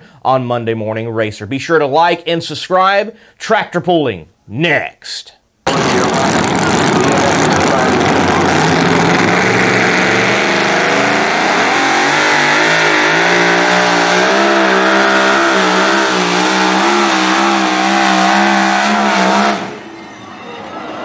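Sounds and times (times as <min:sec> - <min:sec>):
supercharged engine at full throttle: 0:05.7 - 0:19.9.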